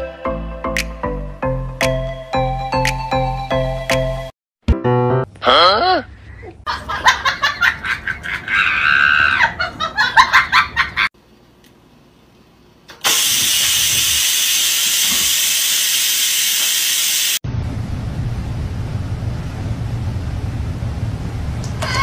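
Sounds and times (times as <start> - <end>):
rice cooker steam hissing: 13.0 - 17.4.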